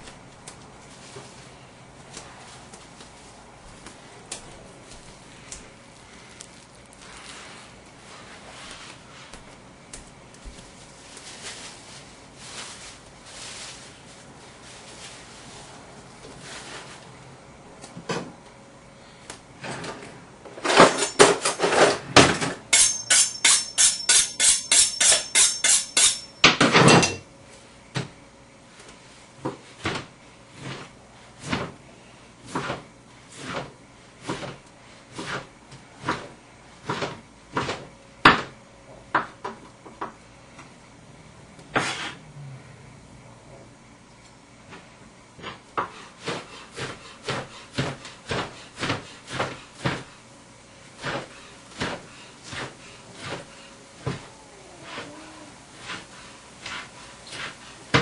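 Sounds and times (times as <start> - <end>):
knife on honing steel: 22.7 - 27.2
knife chopping on cutting board: 45.4 - 50.1.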